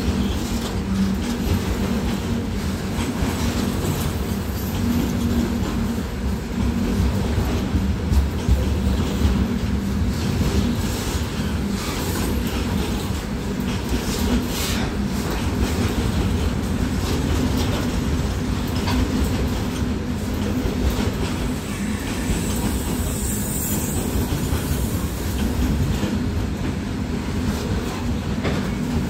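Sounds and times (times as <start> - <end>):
train wheels rumbling on rails: 0.0 - 29.0
wheels clicking over rail joints: 6.6 - 21.6.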